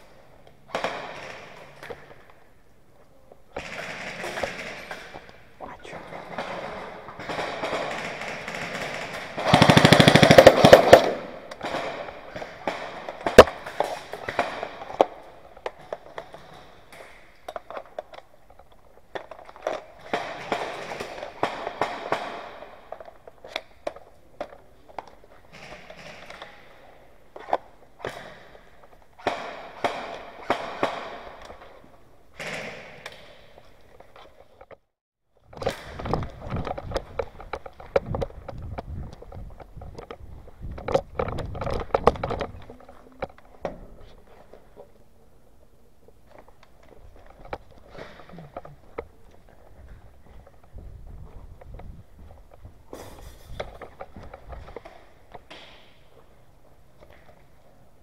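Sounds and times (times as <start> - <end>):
airsoft gun full-auto burst: 3.6 - 4.8, 7.3 - 11.9.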